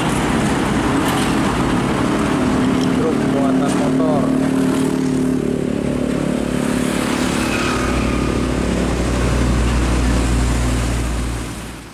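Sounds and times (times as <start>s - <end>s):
road and traffic noise: 0.0s - 11.9s
truck diesel engine passing: 0.0s - 11.9s.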